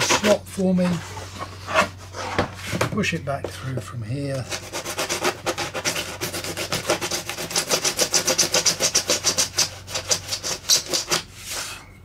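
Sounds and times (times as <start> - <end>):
blade sawing through wood: 4.4 - 11.2.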